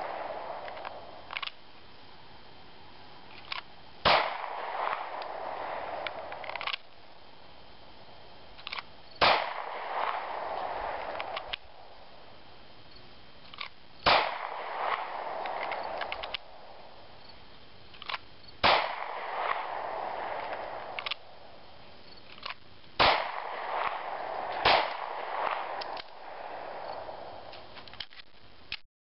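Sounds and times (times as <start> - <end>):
pistol shots: 0.0 - 1.2, 4.0 - 6.8, 8.8 - 11.8, 14.0 - 16.8, 18.1 - 21.6, 23.0 - 27.7.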